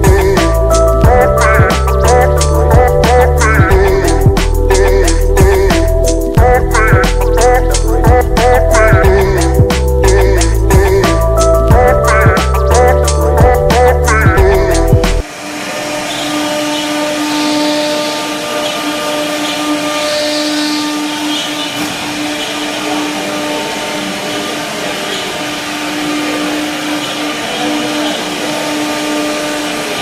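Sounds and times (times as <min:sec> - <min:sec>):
laser cutter fans whirring: 0:15.2 - 0:30.0.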